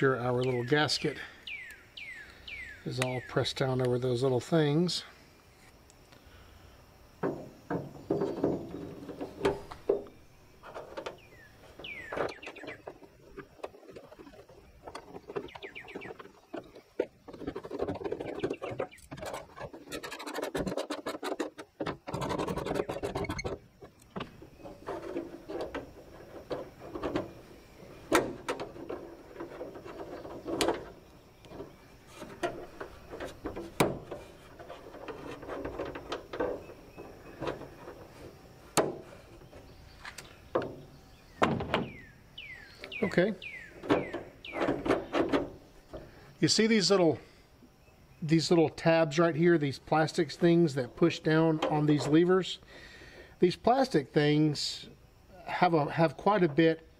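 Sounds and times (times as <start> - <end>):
clicks knocks and scraping on metal: 7.2 - 42.2, 42.8 - 46.4, 49.6 - 52.6.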